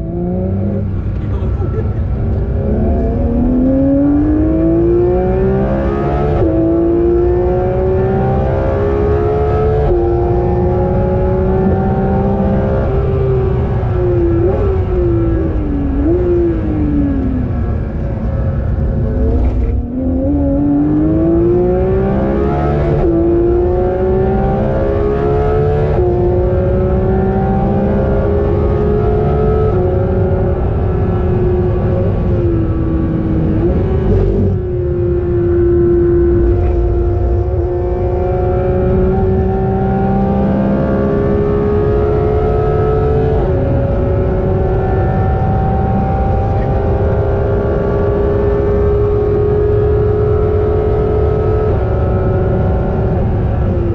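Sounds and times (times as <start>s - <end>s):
car engine at full throttle: 0.0s - 53.9s.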